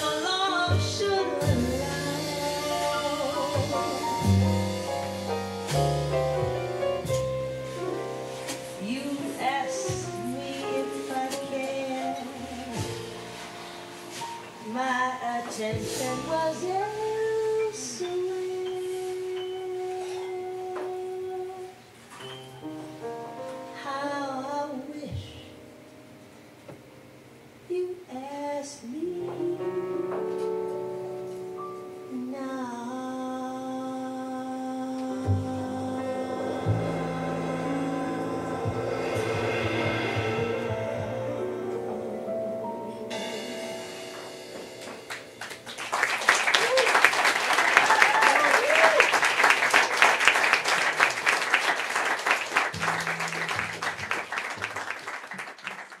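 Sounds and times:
woman singing jazz: 0.0 - 6.2, 7.0 - 21.9, 23.6 - 25.7, 27.6 - 44.8
piano: 0.0 - 56.0
low notes: 0.7 - 11.3, 34.9 - 45.8, 52.7 - 54.6
audience applauding: 45.1 - 56.0.

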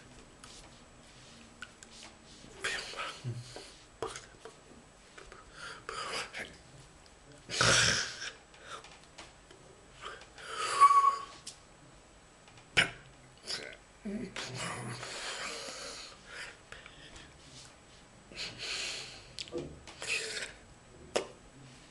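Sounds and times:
man's non-word vocal noises: 12.8 - 15.2.

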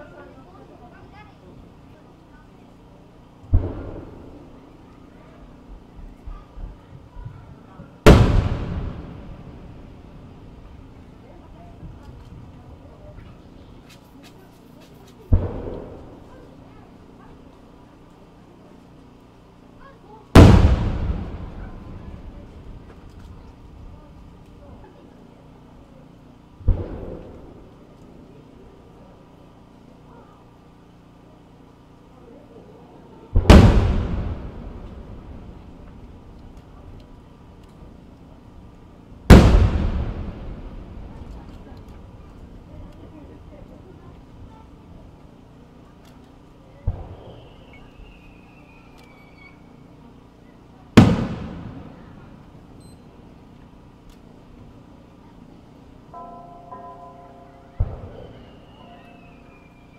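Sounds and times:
firework boom: 8.1 - 9.9, 20.4 - 22.9, 33.4 - 36.0, 39.3 - 42.2, 51.0 - 52.2
echo rolling away: 20.4 - 23.1, 39.2 - 44.4.

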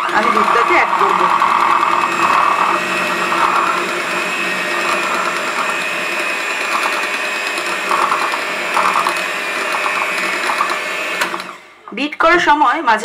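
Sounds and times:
electric hand mixer whipping: 0.0 - 12.6.

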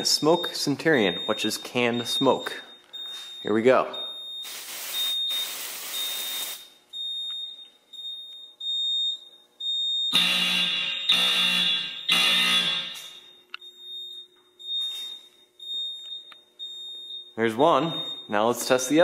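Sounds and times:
fire alarm horn blasts: 0.0 - 18.9
aerosol can spraying: 4.4 - 6.6.

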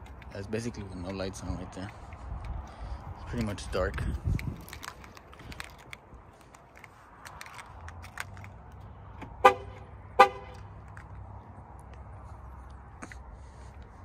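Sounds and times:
car horn chirps: 9.4 - 10.6.

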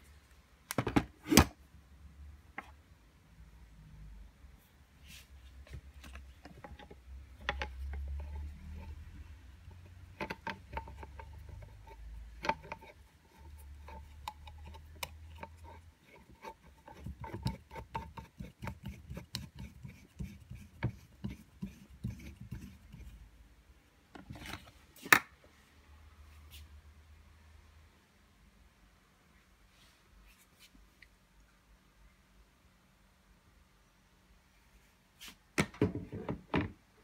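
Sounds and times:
tool handling clicks and rubbing: 5.6 - 23.2.

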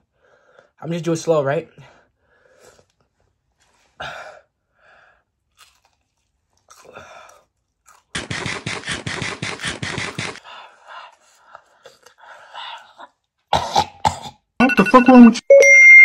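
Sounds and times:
chewing and crunching food: 5.4 - 13.4.

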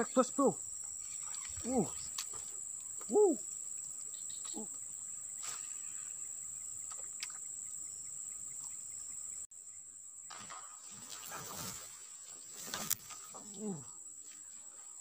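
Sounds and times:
high-pitched insect chorus: 0.0 - 15.0
short call: 3.0 - 3.5.

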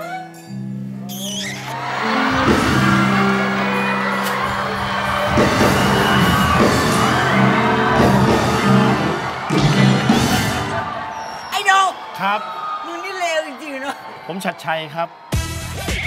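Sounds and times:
audience laughing: 1.7 - 11.2.

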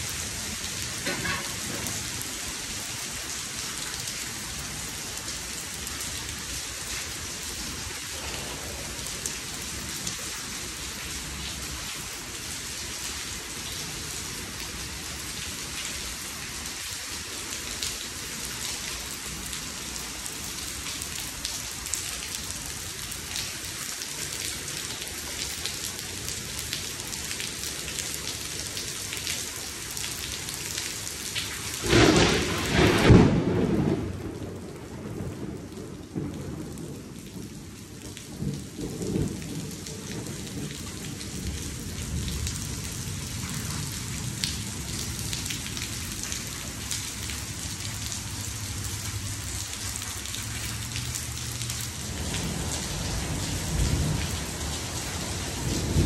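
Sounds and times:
heavy rain on pool and concrete: 0.0 - 56.0
thunder clap and rumble: 31.8 - 45.0, 52.0 - 56.0.

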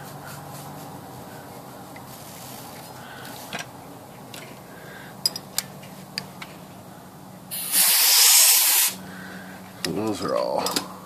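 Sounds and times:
compressed air blow gun hissing: 7.5 - 9.0.

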